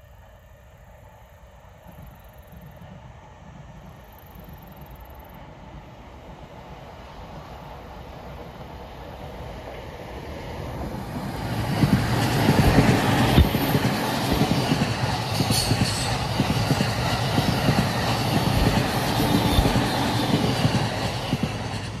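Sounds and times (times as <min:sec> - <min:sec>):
train rumbling past: 0:00.8 - 0:22.0.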